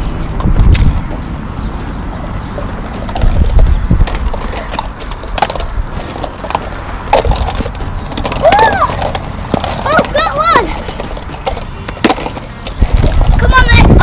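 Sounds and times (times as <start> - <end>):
plastic eggs clacking together: 3.0 - 14.0
children's voices: 8.3 - 11.2, 13.1 - 14.0.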